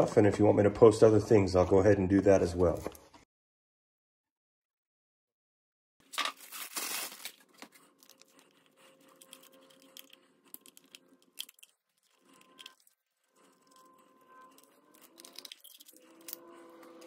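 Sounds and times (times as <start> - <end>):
plastic packaging crinkling: 6.0 - 16.5
small parts clicking: 9.1 - 17.0.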